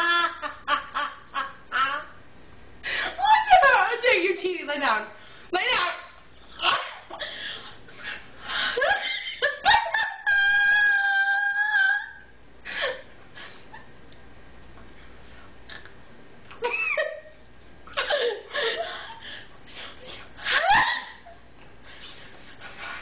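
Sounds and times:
women laughing and giggling: 0.0s - 2.1s, 8.5s - 11.4s, 16.6s - 17.3s, 18.0s - 19.4s, 20.4s - 21.4s.

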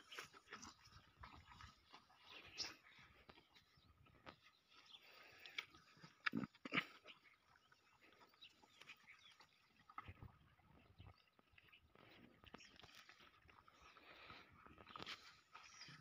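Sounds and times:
wet scraping licks: 0.0s - 10.3s.

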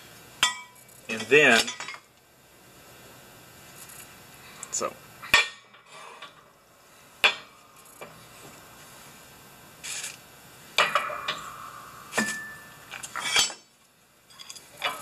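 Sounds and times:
ringing metal clank: 10.8s - 13.7s
metal scraping: 10.9s - 13.7s.

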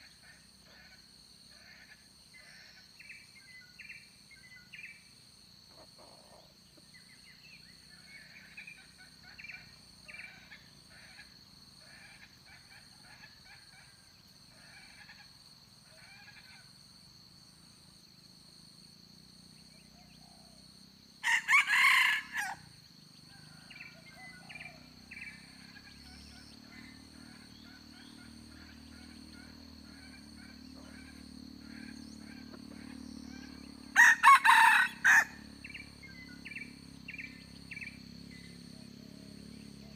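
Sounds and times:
rooster crowing: 21.2s - 22.7s, 33.9s - 35.8s.

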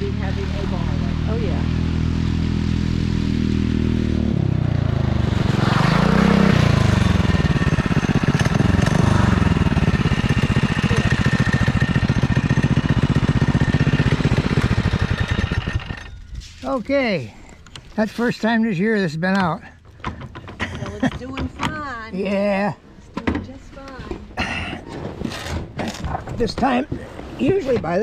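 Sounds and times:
small engine puttering: 5.4s - 16.4s.

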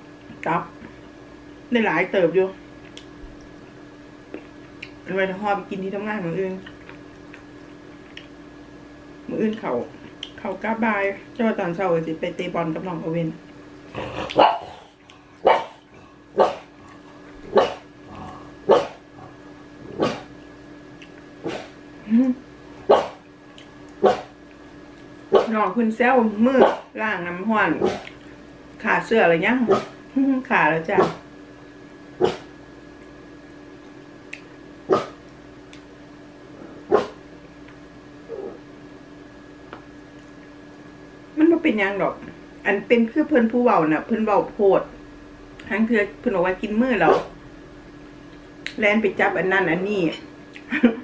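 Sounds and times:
small dog barking: 14.3s - 15.8s, 16.4s - 16.7s, 17.5s - 17.8s, 18.7s - 19.0s, 20.0s - 20.3s, 22.9s - 23.2s, 24.0s - 24.3s, 25.3s - 25.5s, 26.6s - 26.9s, 29.7s - 29.9s, 32.2s - 32.5s, 34.9s - 35.2s, 36.9s - 37.2s.

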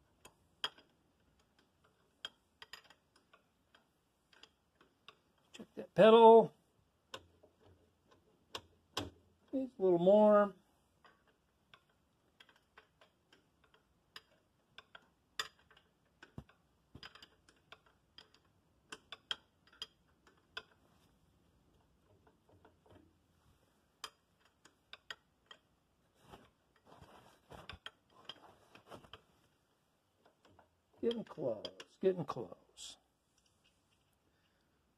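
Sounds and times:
wrench clicking and tapping metal: 0.2s - 5.5s, 11.0s - 20.8s, 24.0s - 25.7s, 30.2s - 32.0s.

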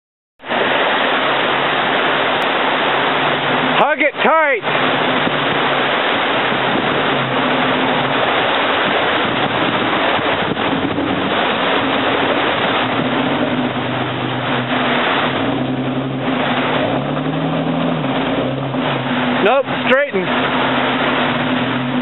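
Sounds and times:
creek water flowing: 0.4s - 22.0s
jeep engine at low revs: 4.6s - 22.0s.

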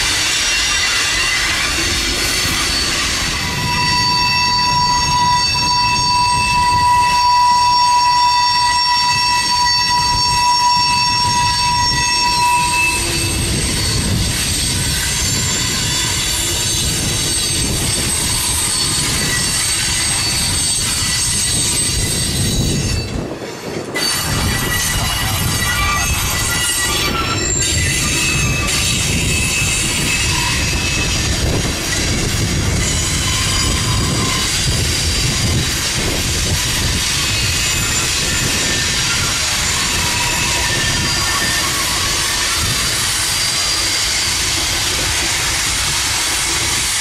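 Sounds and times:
low rumble of freight cars: 0.0s - 47.0s
train wheels squealing on rails: 0.0s - 47.0s.

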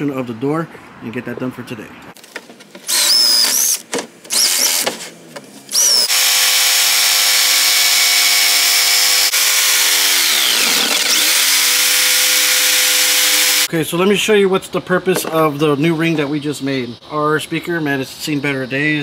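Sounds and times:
cordless drill boring: 2.9s - 4.9s, 5.7s - 13.7s
jigsaw cutting: 2.9s - 5.0s, 5.7s - 13.7s.

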